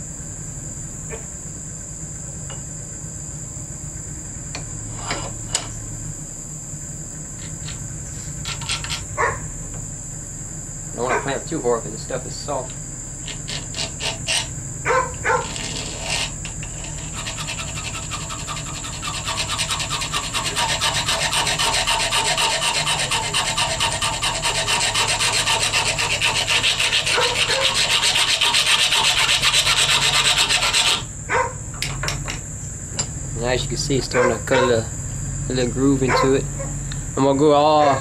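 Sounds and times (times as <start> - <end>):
file rasping on copper: 8.4 - 9.1, 12.6 - 31.1.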